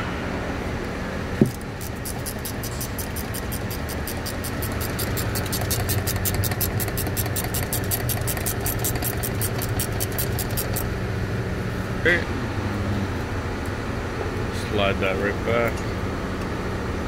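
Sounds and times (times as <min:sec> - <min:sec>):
steady low hum: 0:00.0 - 0:17.0
hand ratchet clicking: 0:01.5 - 0:10.9.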